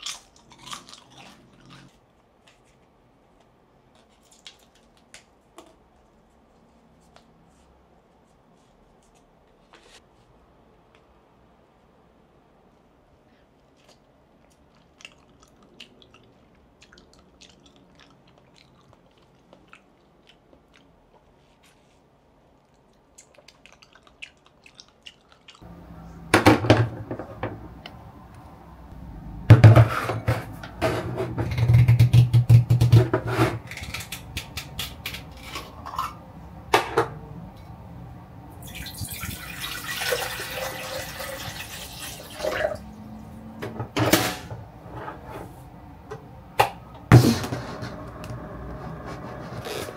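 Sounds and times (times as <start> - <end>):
water pouring into kettle: 38.6 - 42.8.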